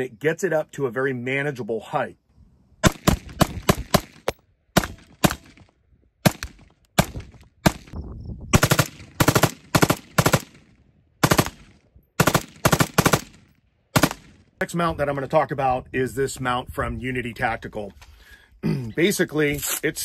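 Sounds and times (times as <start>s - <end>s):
rifle firing rapid shots: 2.8s - 5.6s, 6.2s - 8.0s, 8.6s - 14.4s.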